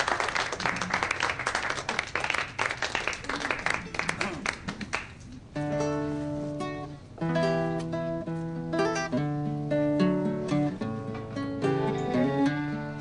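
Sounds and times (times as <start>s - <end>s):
crowd applauding: 0.0s - 5.2s.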